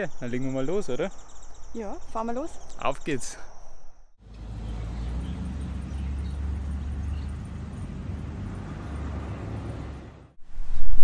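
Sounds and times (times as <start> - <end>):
car engine rumble: 4.2 - 10.4
tyres on road: 4.2 - 10.4.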